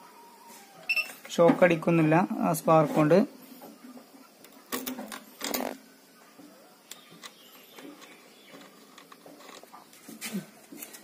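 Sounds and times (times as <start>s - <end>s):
metal lug clicking and scraping: 6.9s - 10.0s.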